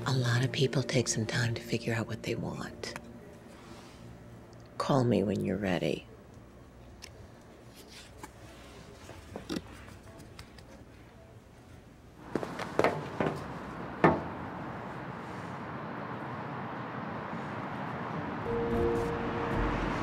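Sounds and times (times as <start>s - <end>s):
outdoor street hiss: 2.1s - 8.9s, 11.8s - 20.0s.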